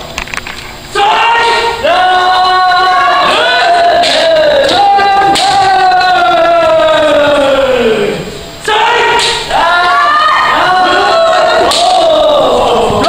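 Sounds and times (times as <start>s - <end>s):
people shouting long cries: 0.9s - 13.0s
bamboo swords striking: 4.0s - 5.6s, 9.2s - 9.5s, 11.6s - 12.0s.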